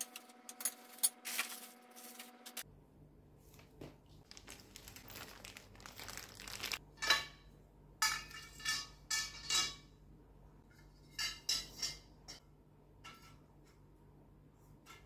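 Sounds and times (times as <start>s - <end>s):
paper rustling: 1.2s - 2.6s, 4.2s - 6.8s.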